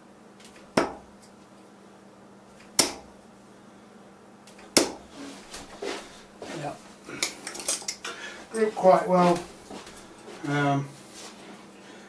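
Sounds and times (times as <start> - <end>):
darts thudding into dartboard: 0.4 - 1.1, 2.6 - 3.1, 4.5 - 5.7.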